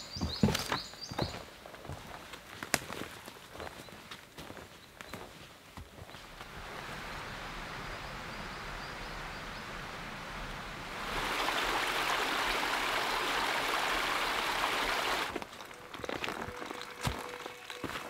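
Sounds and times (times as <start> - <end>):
stream flowing: 6.3 - 18.0.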